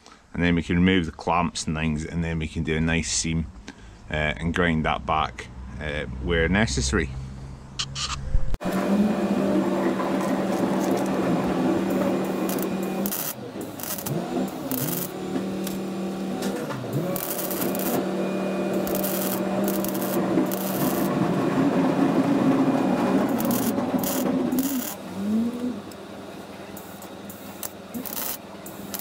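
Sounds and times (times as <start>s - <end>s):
welding arc crackling: 8.6s - 26.0s, 26.7s - 29.0s.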